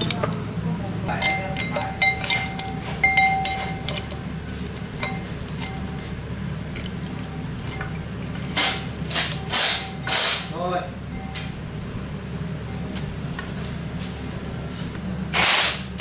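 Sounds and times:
metal parts clinking: 0:00.0 - 0:00.4, 0:01.1 - 0:10.6.

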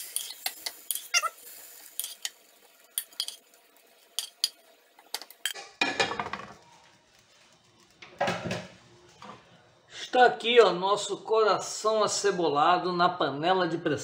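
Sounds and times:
metal spoon clinking on pot: 0:03.0 - 0:03.4.

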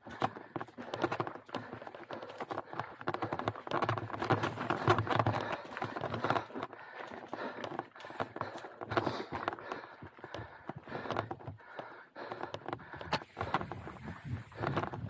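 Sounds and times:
bike chain and frame rattling: 0:00.0 - 0:15.0
bike tyres knocking over rocks: 0:00.1 - 0:11.5, 0:12.5 - 0:15.0.

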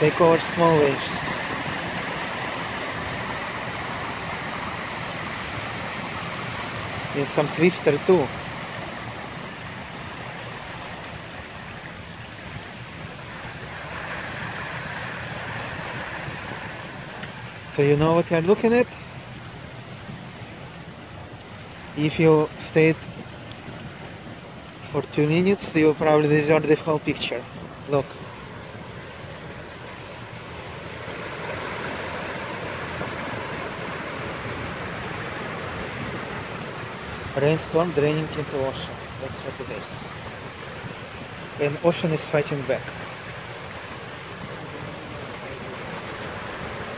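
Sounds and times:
water rushing down storm drain: 0:00.0 - 0:11.4
ocean waves washing: 0:00.0 - 0:46.9.

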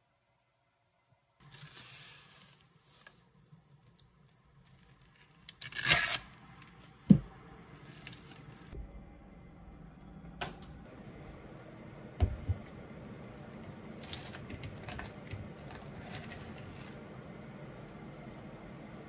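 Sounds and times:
plastic cling wrap crinkling: 0:01.4 - 0:06.8, 0:07.8 - 0:08.8.

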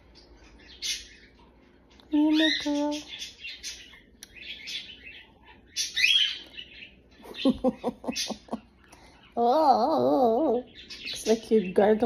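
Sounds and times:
cockatiel chirping: 0:02.4 - 0:08.4.

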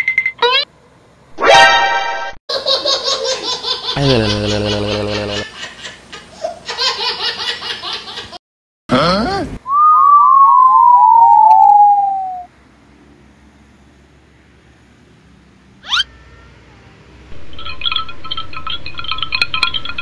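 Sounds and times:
cartoon giggling laugh: 0:02.5 - 0:08.4
falling whistle chirps: 0:09.7 - 0:12.5.

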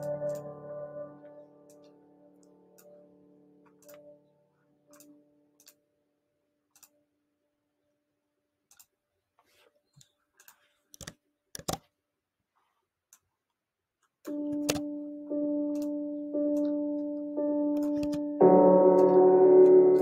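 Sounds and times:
background piano music: 0:00.0 - 0:05.6, 0:14.3 - 0:20.0
mouse and keyboard clicks: 0:10.4 - 0:11.9, 0:17.8 - 0:18.3.

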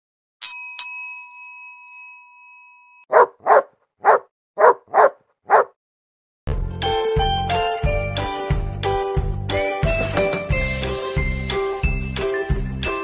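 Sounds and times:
dog barking: 0:03.1 - 0:05.8
music: 0:06.5 - 0:13.0.

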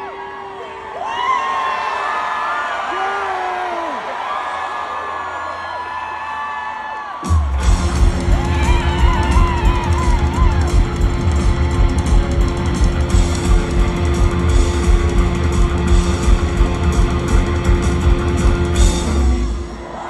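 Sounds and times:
rock band playing loudly: 0:07.2 - 0:19.9.

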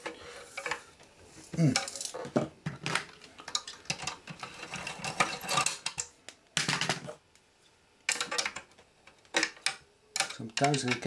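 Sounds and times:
circuit boards clicking and clattering: 0:01.7 - 0:07.2, 0:08.1 - 0:11.0.

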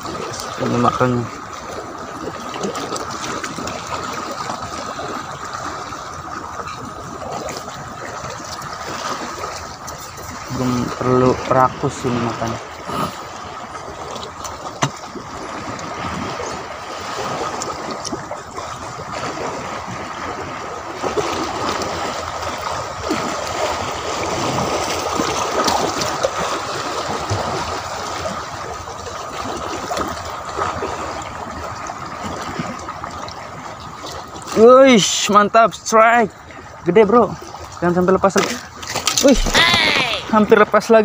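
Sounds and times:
small splashes: 0:00.0 - 0:11.0, 0:37.4 - 0:40.5
seawater washing around rocks: 0:00.0 - 0:41.0.

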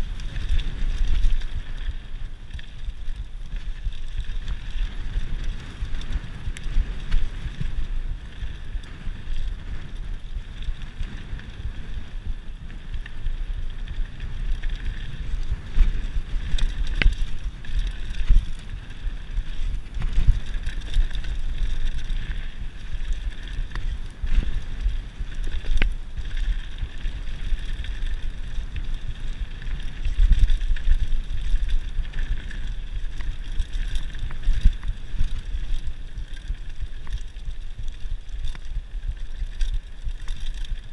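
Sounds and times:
wind buffeting microphone: 0:00.0 - 0:37.4
bike clicks and knocks: 0:12.6 - 0:40.9.

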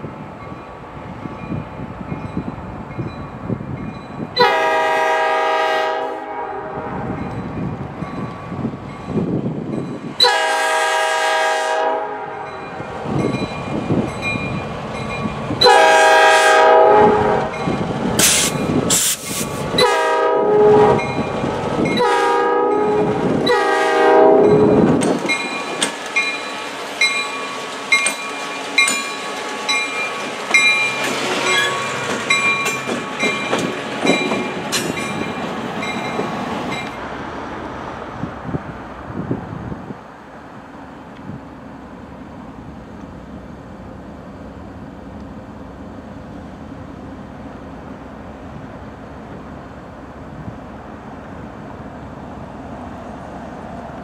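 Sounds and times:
locomotive horn blasts: 0:04.4 - 0:07.2, 0:10.2 - 0:12.6, 0:15.6 - 0:17.6, 0:19.7 - 0:21.2, 0:21.9 - 0:24.9
diesel engine and wheels rumbling: 0:12.8 - 0:20.2.

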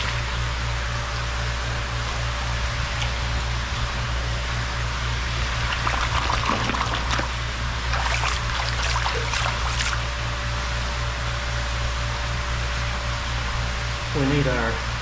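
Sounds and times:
pulsing low hum: 0:00.0 - 0:15.0
creek water trickling: 0:05.6 - 0:10.1.

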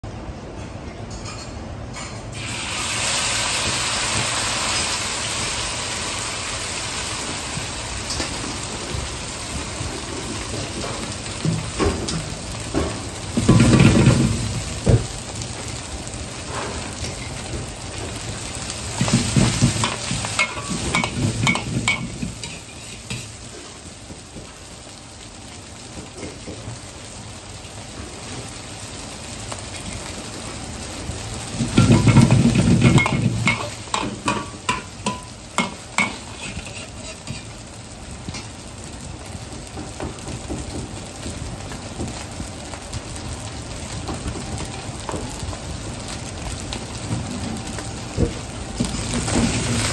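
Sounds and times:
noodles sizzling in hot oil: 0:02.3 - 0:49.9
metal ladle scraping wok: 0:31.8 - 0:37.6.

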